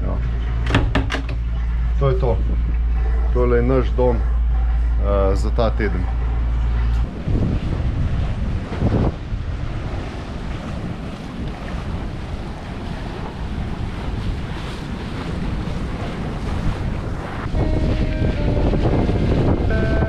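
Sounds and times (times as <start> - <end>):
water rushing past hull: 0.0 - 20.0
wind buffeting microphone: 0.0 - 20.0.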